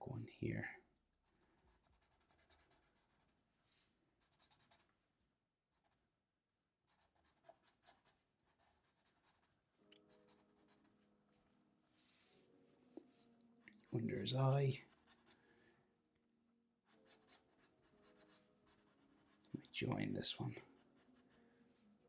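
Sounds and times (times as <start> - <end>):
marker scratching on paper: 1.2 - 4.9, 6.9 - 10.9, 11.9 - 15.5, 16.9 - 19.8, 20.6 - 22.0.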